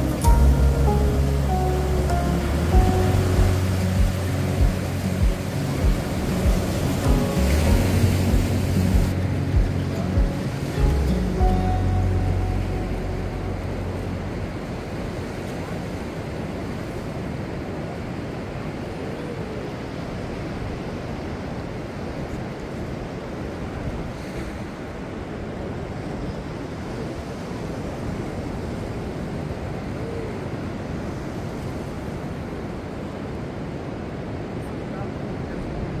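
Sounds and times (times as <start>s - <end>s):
wind buffeting microphone: 0.0s - 11.6s
ocean surf on beach: 0.0s - 36.0s.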